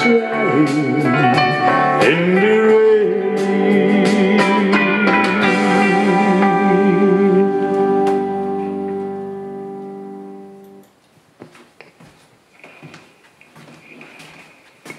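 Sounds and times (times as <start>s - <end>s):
country ballad music: 0.0s - 10.8s.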